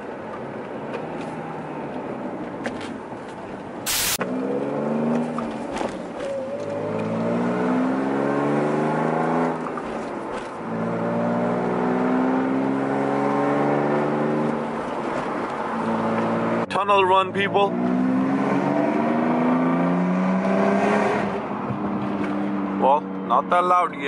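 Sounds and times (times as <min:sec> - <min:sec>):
car engine accelerating: 0:04.2 - 0:16.7, 0:17.6 - 0:23.3.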